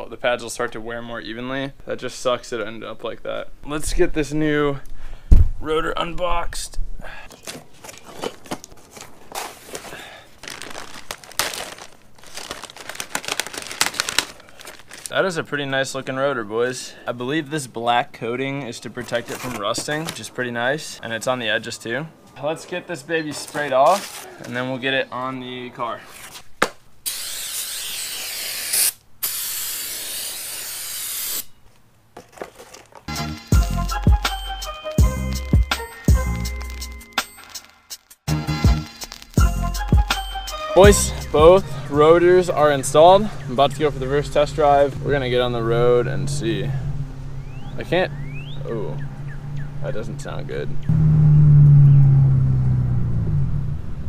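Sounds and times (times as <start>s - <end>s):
plastic bag crinkling: 7.3s - 15.4s, 23.3s - 24.5s, 32.2s - 33.1s, 36.4s - 38.2s, 38.9s - 39.4s
aerosol spray hissing: 27.1s - 31.5s
background music with a beat: 33.1s - 41.7s.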